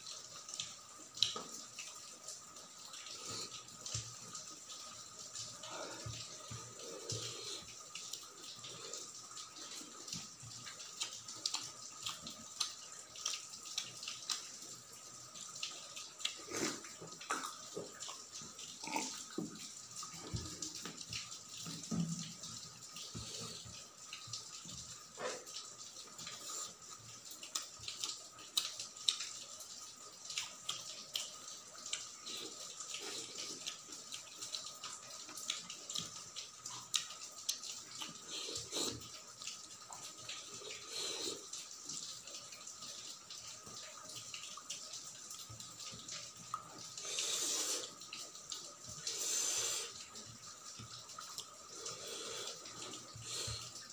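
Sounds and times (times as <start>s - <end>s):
wet chewing and lip-smacking: 10.9s - 14.5s, 27.5s - 29.3s, 30.3s - 32.1s, 36.7s - 39.0s.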